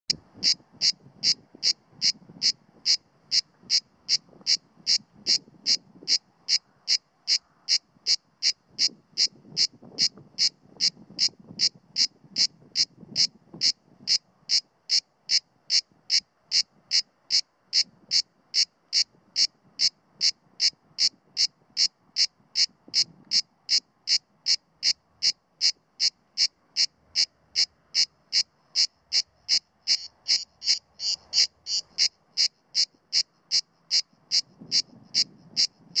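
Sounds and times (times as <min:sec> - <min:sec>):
cicada pulsing song: 0:00.1 - 0:36.0.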